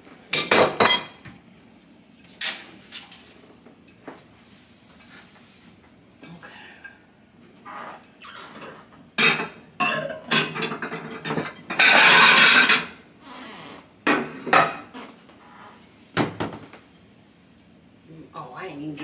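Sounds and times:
dishes clattering: 0.3 - 1.4, 8.6 - 13.0, 14.1 - 14.9, 16.2 - 16.7.

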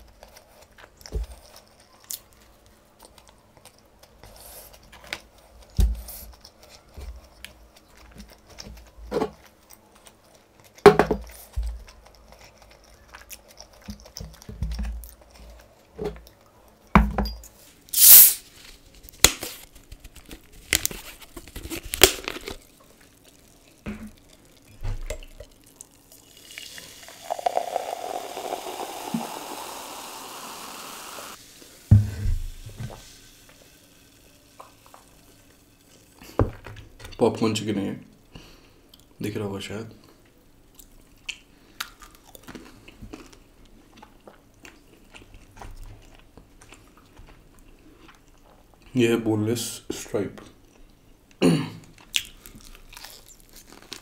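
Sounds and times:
chewing crunches and smacks: 0.0 - 16.9, 19.7 - 26.4, 40.7 - 48.9, 51.8 - 54.0
cola pouring and fizzing: 22.6 - 36.6.

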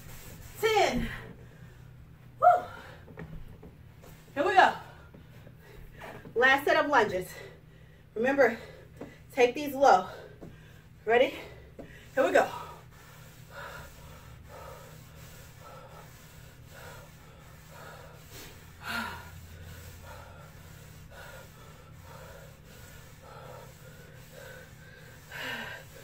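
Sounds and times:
woman breathing hard: 10.1 - 26.0.

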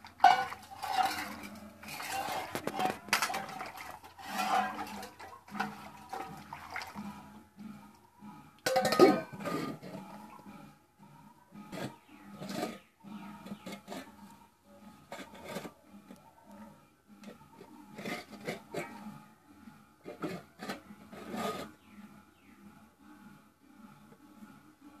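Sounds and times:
steel dishes scraping on concrete: 0.1 - 6.4, 8.7 - 10.0, 15.1 - 15.8.

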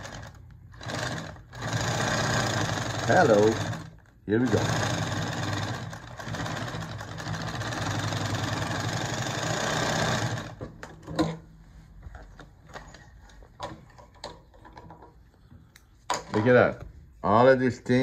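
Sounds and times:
industrial sewing machine running: 0.0 - 10.6.

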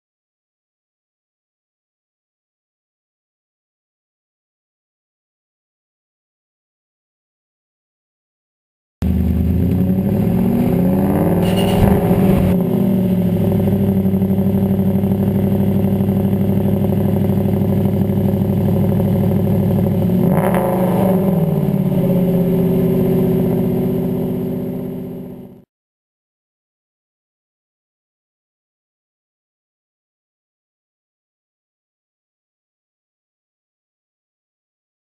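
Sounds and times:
car engine idling: 9.0 - 25.6
engine throttle blips: 9.0 - 25.6.

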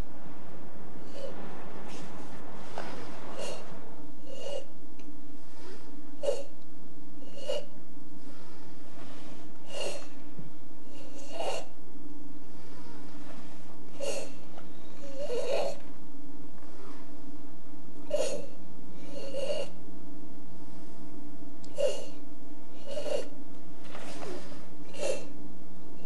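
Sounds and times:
steady low hum: 0.0 - 26.0
short noisy breaths: 0.9 - 6.6, 7.2 - 11.8, 18.1 - 19.8, 21.7 - 25.4.

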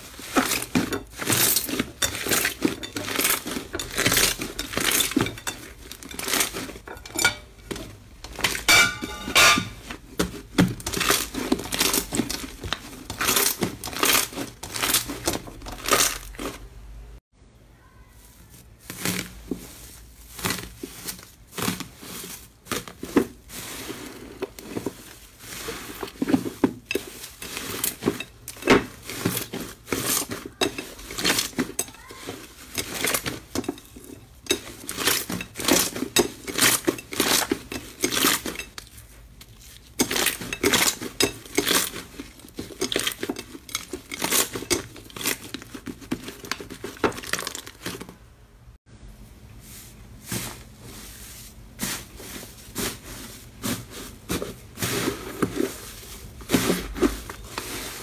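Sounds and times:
foil crinkling and tearing: 9.7 - 16.7, 18.4 - 48.2.

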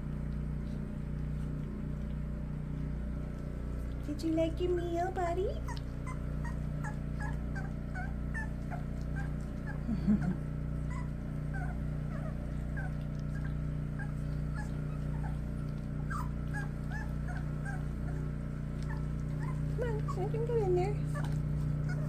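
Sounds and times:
steady low hum: 0.0 - 22.0
puppies whimpering and squeaking: 5.5 - 22.0.

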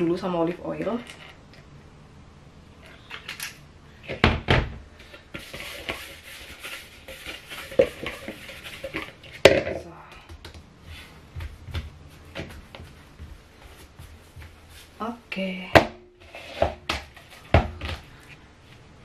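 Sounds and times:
hands rustling dough: 4.9 - 15.0.

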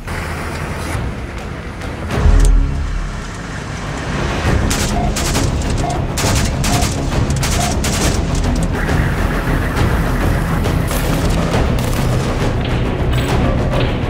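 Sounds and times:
background music with repeating tone: 2.1 - 14.0
rapid rifle shots: 4.6 - 9.7.

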